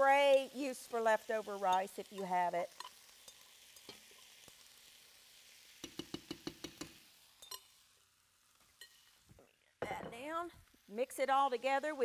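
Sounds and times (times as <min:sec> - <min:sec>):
spoon knocking glass bowl: 0:05.8 - 0:07.6.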